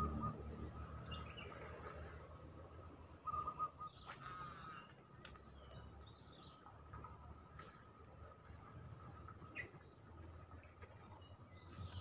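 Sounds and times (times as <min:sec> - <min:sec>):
outdoor background noise: 0:00.0 - 0:12.0
bird trilling: 0:03.2 - 0:04.9.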